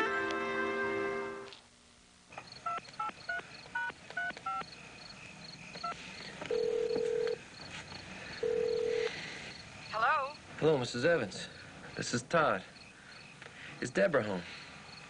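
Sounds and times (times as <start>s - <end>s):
crickets chirping: 2.3s - 15.0s
telephone keypad beeps: 2.7s - 4.6s, 5.8s - 7.4s
telephone ringing tone: 5.8s - 7.4s, 8.4s - 9.1s.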